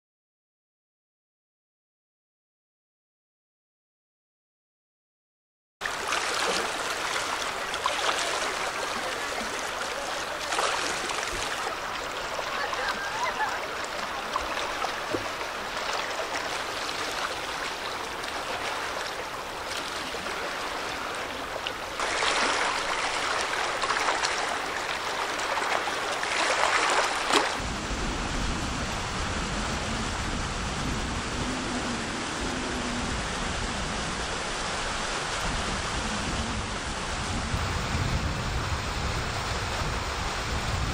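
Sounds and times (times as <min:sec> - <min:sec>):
water washing against rocky shore: 0:05.8 - 0:37.6.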